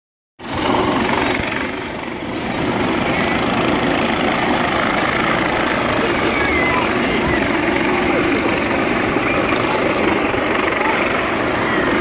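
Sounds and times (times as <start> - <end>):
vehicles driving slowly past: 0.4 - 12.0.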